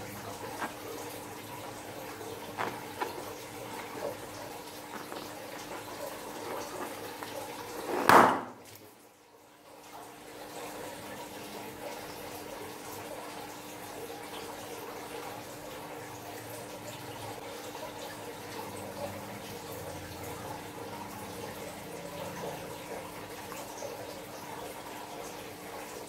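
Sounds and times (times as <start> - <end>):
liquid gushing into glass dish: 0.0 - 8.7
liquid sloshing: 0.0 - 8.8
rubbery balloon clicks: 7.8 - 8.6.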